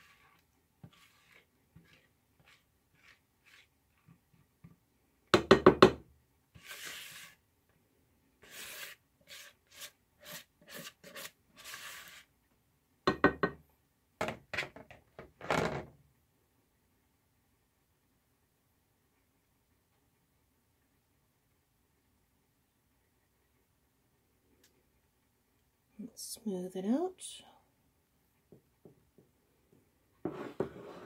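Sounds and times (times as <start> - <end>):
spatula scraping plastic bowl: 0.0 - 4.3, 6.6 - 7.4, 8.4 - 12.3, 30.2 - 31.0.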